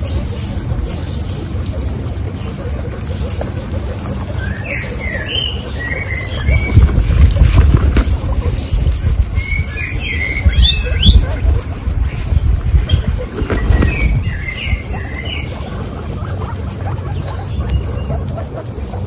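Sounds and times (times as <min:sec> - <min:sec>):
guinea pigs chewing carrot: 0:00.0 - 0:19.0
high bird chirps: 0:03.2 - 0:11.5, 0:12.1 - 0:18.2.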